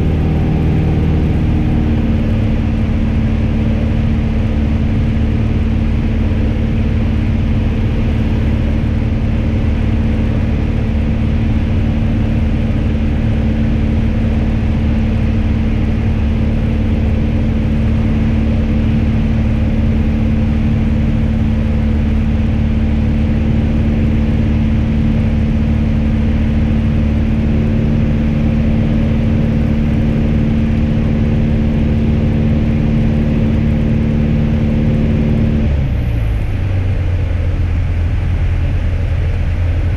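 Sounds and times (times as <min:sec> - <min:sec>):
airplane engine drone in cabin: 0:00.0 - 0:39.9.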